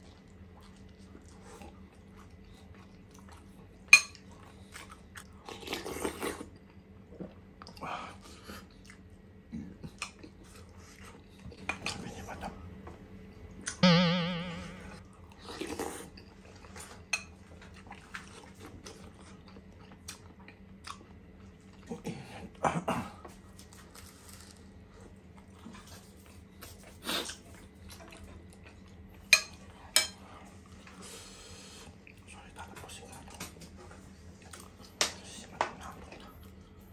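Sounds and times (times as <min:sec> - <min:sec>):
chewing and biting: 0:15.4 - 0:22.1.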